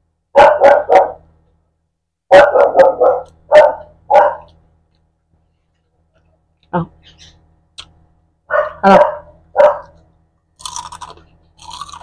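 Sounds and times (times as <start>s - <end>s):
dog barking: 0.3s - 1.3s, 2.3s - 4.6s, 8.5s - 10.0s.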